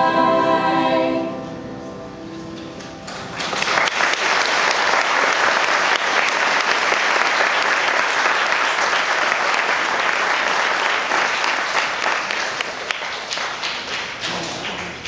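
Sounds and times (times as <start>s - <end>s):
audience applause: 3.1s - 15.0s.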